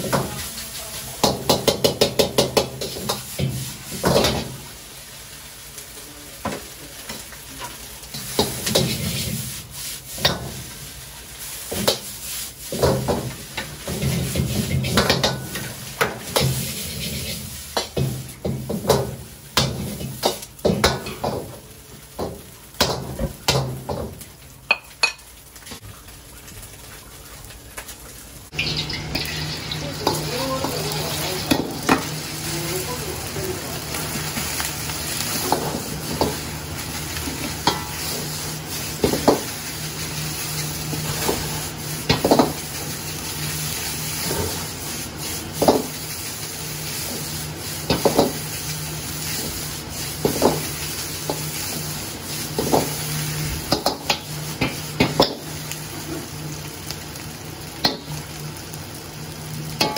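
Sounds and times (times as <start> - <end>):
rice and egg sizzling: 0.0 - 59.9
metal ladle scraping a wok: 16.3 - 17.5.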